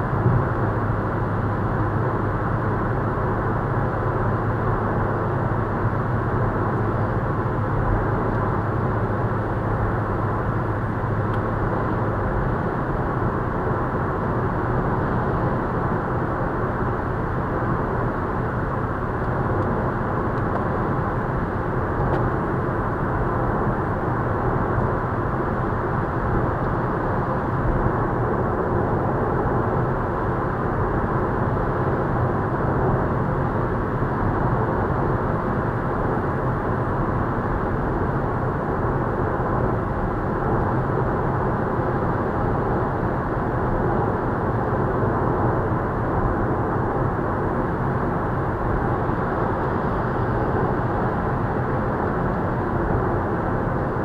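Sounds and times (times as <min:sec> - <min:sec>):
low engine drone: 0:00.0 - 0:54.0
muffled road and wind noise: 0:00.0 - 0:54.0.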